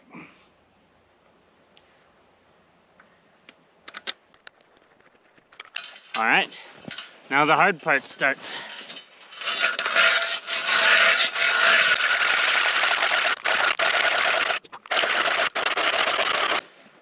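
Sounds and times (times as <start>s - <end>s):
ice auger blades scraping ice: 5.8s - 16.6s.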